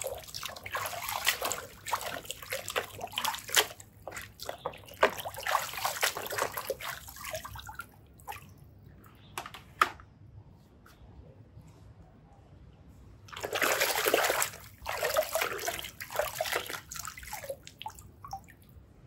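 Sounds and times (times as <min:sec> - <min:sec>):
hands splashing water in basin: 0:00.0 - 0:08.5, 0:13.3 - 0:18.5
water drips: 0:00.0 - 0:08.7, 0:13.3 - 0:18.8.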